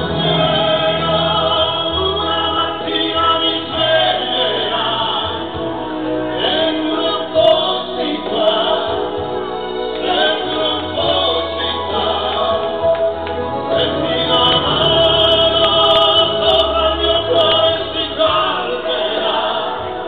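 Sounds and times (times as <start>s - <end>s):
keyboard: 0.0s - 20.0s
man and woman singing duet: 0.0s - 20.0s.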